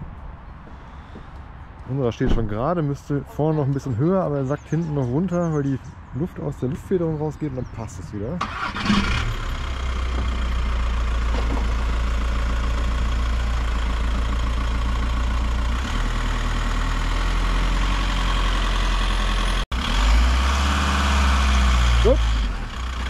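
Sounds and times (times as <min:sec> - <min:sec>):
vehicle engine idling: 0:06.6 - 0:19.6, 0:21.2 - 0:23.0.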